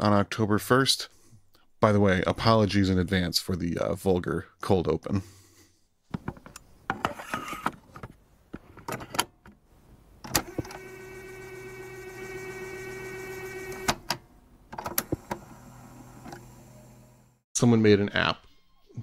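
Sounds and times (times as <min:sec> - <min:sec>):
small electric motor whirring: 0:10.4 - 0:13.9, 0:15.1 - 0:17.4.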